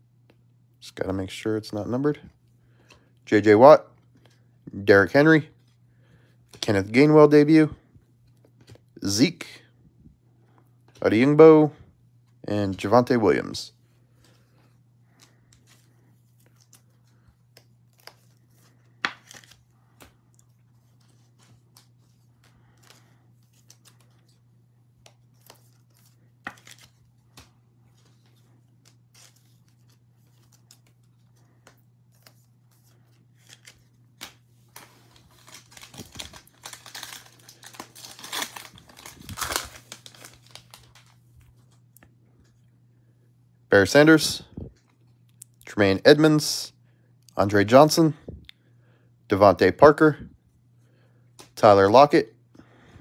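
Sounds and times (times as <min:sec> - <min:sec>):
foil wrapper tearing and crinkling: 0:33.4 - 0:41.2.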